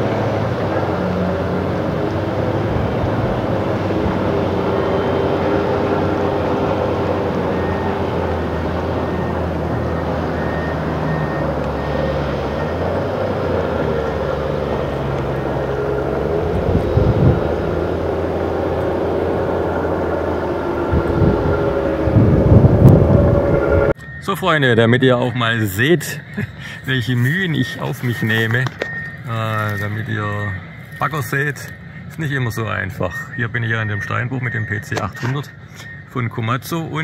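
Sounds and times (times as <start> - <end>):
diesel machinery engine: 0.0 - 37.0
low thumps: 14.6 - 24.0.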